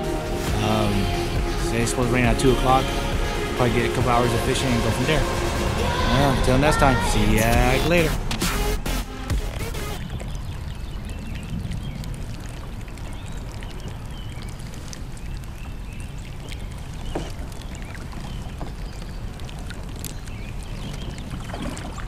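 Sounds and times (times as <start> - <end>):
water sloshing around boat: 9.3 - 22.0.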